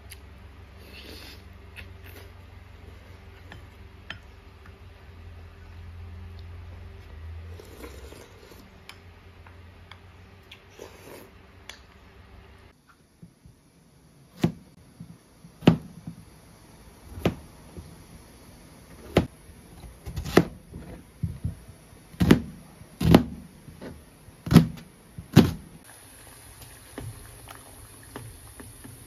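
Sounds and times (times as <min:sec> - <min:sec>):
knife chopping on plastic board: 0:14.3 - 0:14.7, 0:15.6 - 0:16.2, 0:17.1 - 0:17.5, 0:19.0 - 0:25.7.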